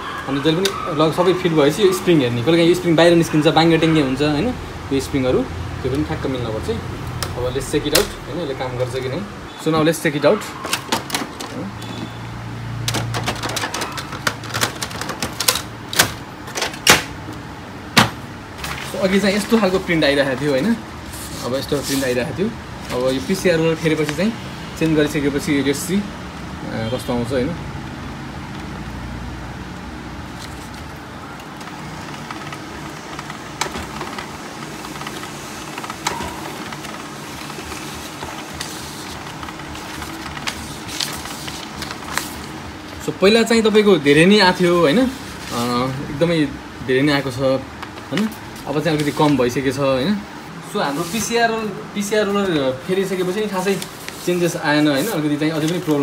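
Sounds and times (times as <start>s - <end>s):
printer whirring: 0.0s - 56.0s
printer clicks: 12.8s - 19.8s, 30.8s - 42.6s.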